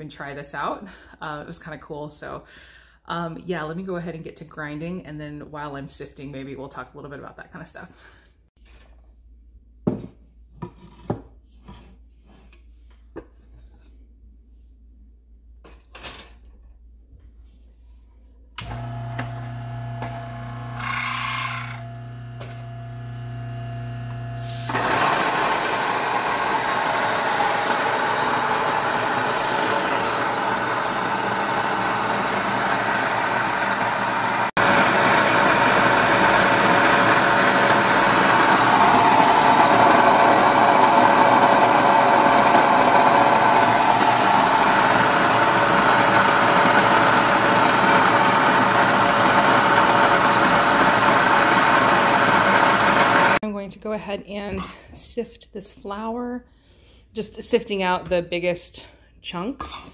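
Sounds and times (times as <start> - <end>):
grain mill grinding: 18.6 - 53.4
grain mill motor humming: 18.6 - 53.4.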